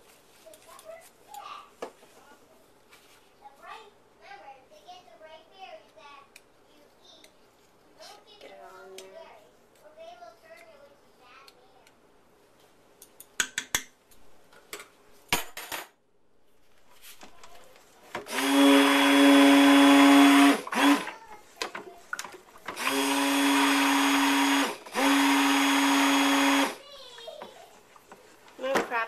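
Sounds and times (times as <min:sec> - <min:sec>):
stick blender running: 0:18.2 - 0:26.8.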